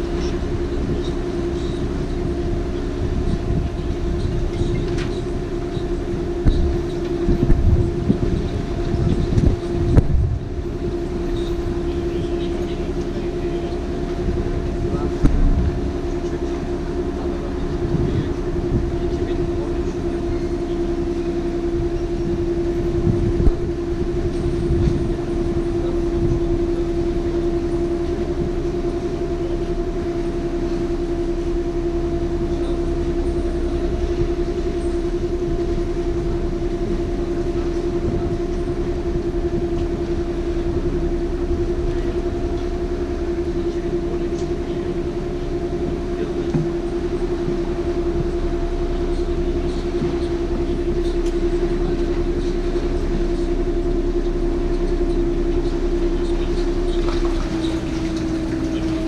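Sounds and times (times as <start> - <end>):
boat engine droning: 0.0 - 59.0.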